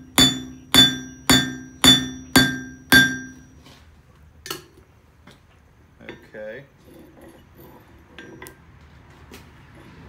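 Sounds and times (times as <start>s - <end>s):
anvil ringing: 0.0s - 3.6s
hammer striking metal on anvil: 0.0s - 3.6s.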